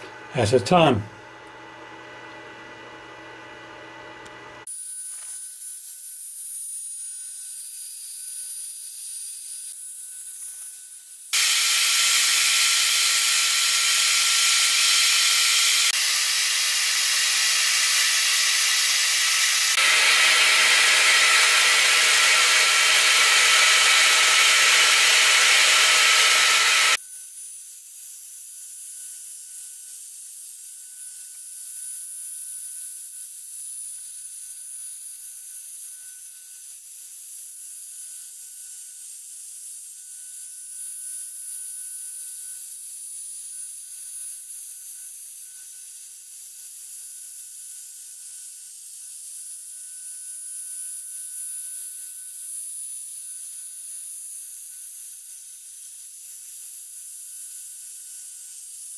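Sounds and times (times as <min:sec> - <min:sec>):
router spindle cutting wood: 0:11.4 - 0:27.0.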